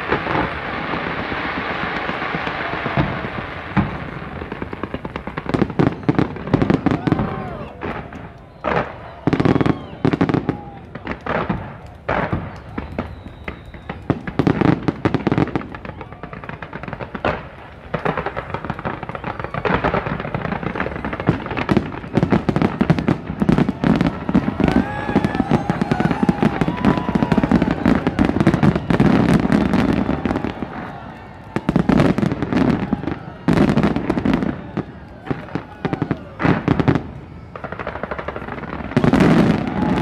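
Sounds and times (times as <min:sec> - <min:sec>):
firework bangs: 0:00.0 - 0:40.0
fireworks crackling: 0:00.0 - 0:40.0.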